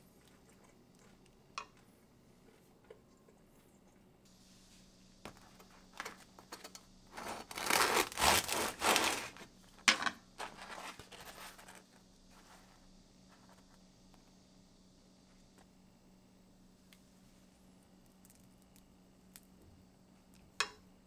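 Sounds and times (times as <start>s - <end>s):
faint steady hum: 0.0s - 21.0s
bread crust crackling and tearing: 7.1s - 9.5s.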